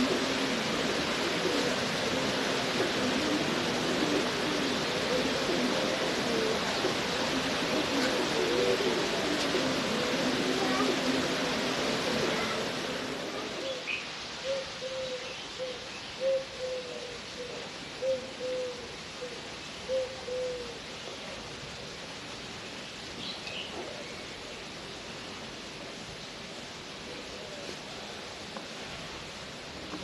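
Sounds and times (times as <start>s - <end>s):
dove cooing: 0.0s - 20.9s.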